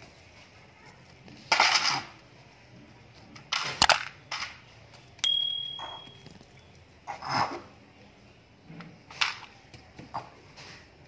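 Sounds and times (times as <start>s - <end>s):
plastic toys clattering: 3.3s - 4.8s
short ringing ding: 5.2s - 6.2s.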